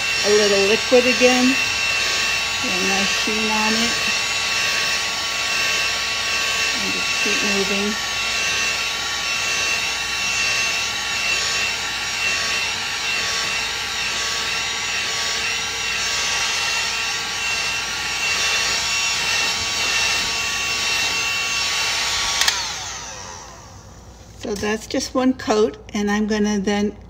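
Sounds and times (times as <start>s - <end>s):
heat gun fan whine: 0.0s - 25.2s
heat gun switch click: 22.4s - 22.6s.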